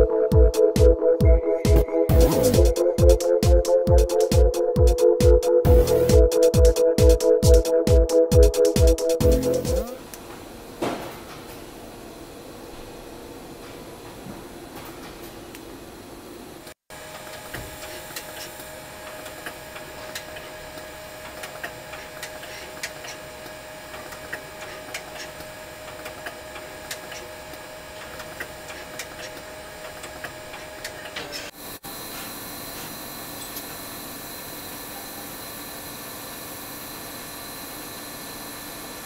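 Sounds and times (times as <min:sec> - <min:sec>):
machine tone: 0:00.0 - 0:10.1
high machine whine: 0:00.0 - 0:10.2.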